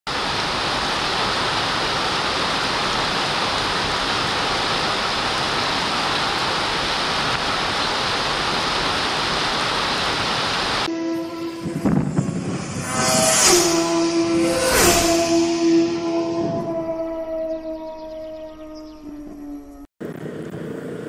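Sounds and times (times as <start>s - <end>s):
rushing water: 0.1s - 10.9s.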